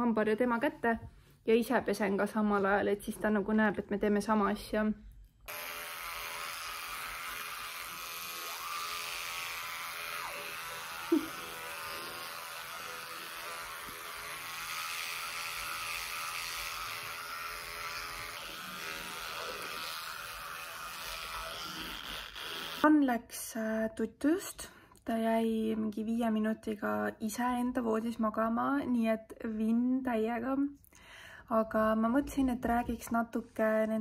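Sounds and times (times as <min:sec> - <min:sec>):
electric toothbrush buzzing: 0:05.4 - 0:23.0.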